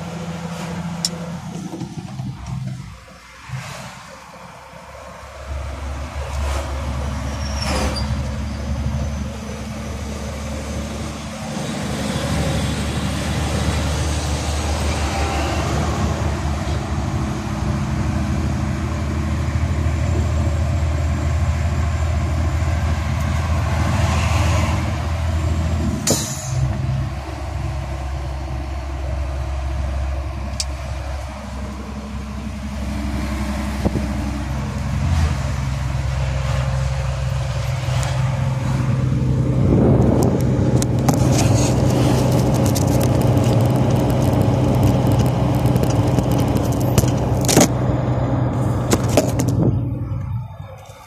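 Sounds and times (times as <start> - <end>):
truck diesel engine hum: 0.0 - 51.0
cab clicks and rattles: 40.0 - 47.8.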